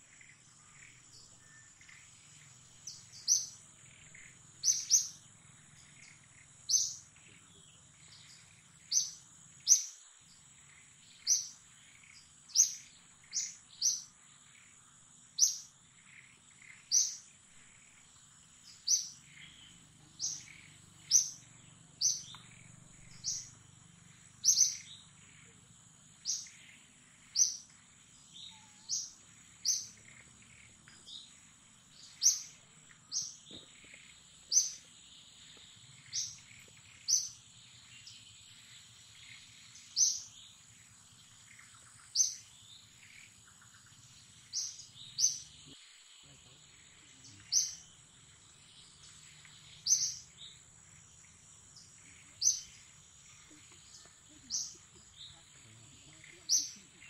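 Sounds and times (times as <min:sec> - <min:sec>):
bird chirping: 0:00.0 - 0:57.0.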